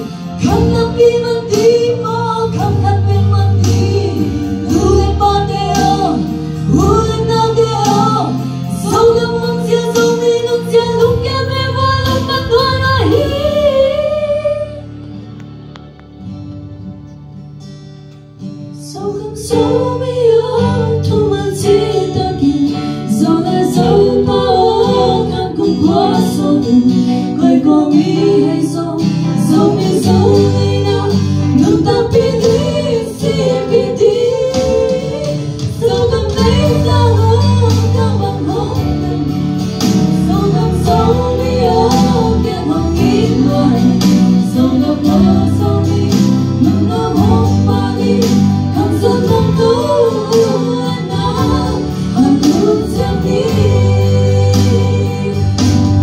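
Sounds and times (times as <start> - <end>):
women singing a duet: 0.0 - 14.9, 18.8 - 56.0
instrumental accompaniment: 0.0 - 56.0.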